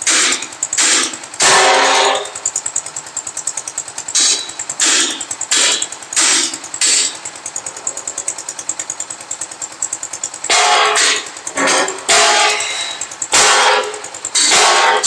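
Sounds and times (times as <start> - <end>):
engine chugging: 0.0 - 15.0.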